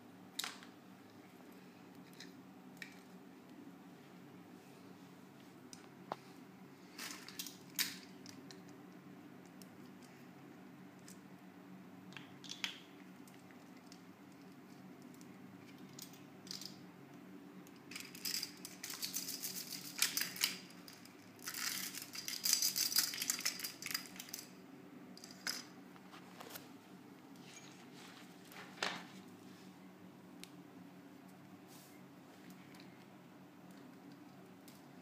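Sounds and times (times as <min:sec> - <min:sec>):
low steady hum: 0:00.0 - 0:35.0
plastic accessories clicking and rattling: 0:17.7 - 0:24.6.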